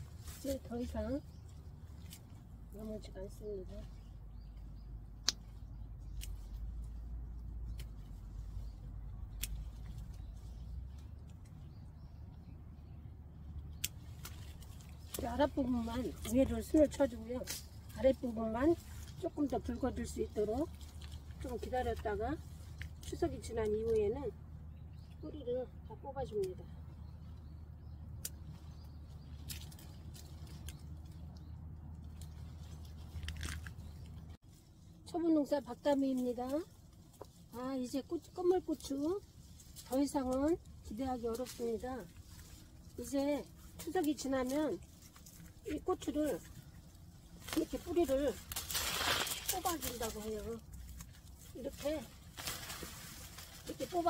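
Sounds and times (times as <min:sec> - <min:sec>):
leaves rustling: 0:00.0 - 0:11.9, 0:13.4 - 0:25.0, 0:27.5 - 0:54.0
low steady rumble: 0:00.0 - 0:54.0
pruning shears snipping: 0:05.2 - 0:06.7, 0:09.3 - 0:10.2, 0:13.7 - 0:18.4, 0:47.4 - 0:54.0.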